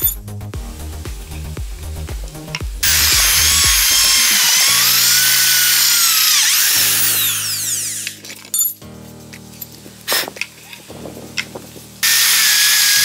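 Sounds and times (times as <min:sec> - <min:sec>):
background music with bass: 0:00.0 - 0:13.0
electric drill screeching through steel: 0:02.8 - 0:08.3, 0:12.0 - 0:13.0.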